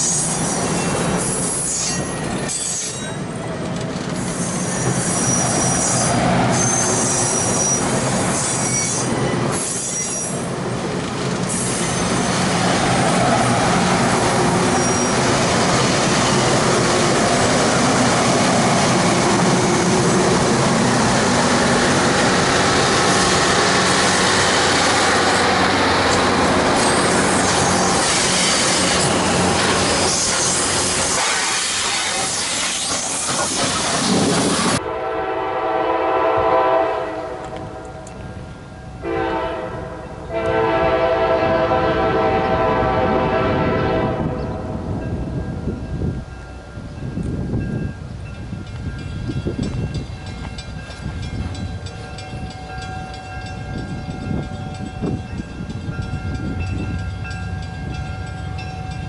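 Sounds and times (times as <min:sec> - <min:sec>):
train wheels rumbling on rails: 0:00.0 - 0:59.0
squealing wheel flanges: 0:04.2 - 0:10.5, 0:14.7 - 0:15.2.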